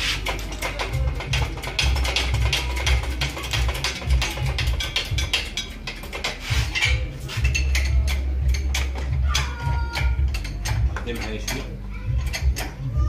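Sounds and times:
metal chain clinking: 0.0 - 12.9.

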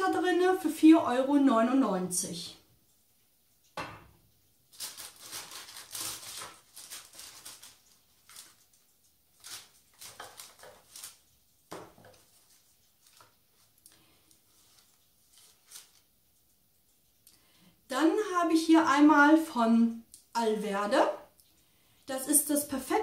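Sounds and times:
paper and packaging rustling: 4.7 - 16.1.

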